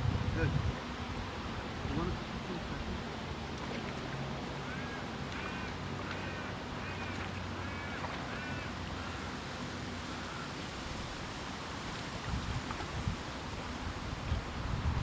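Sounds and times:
wind and water hiss: 0.0 - 15.0
waterbird calling: 1.9 - 11.2.

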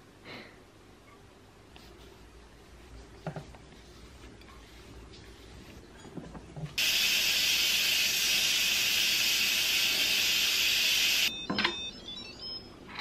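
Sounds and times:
pressure cooker venting steam: 6.8 - 11.3.

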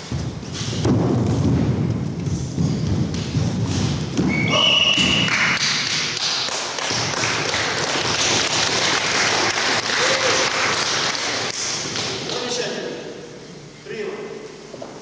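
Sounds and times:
strikes thudding: 0.0 - 6.0
bare feet on gym floor: 0.0 - 6.2
din of hall: 0.0 - 15.0.

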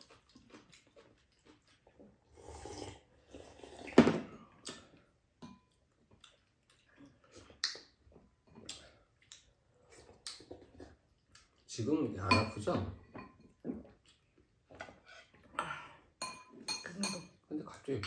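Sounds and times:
slurping broth: 2.1 - 4.2.

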